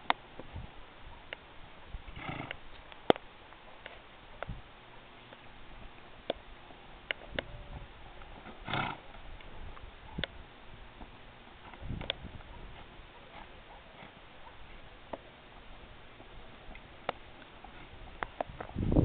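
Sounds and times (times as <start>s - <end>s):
hooves on dirt: 0.0s - 19.0s
horse snorting: 2.1s - 2.6s, 8.4s - 9.1s, 12.8s - 14.2s.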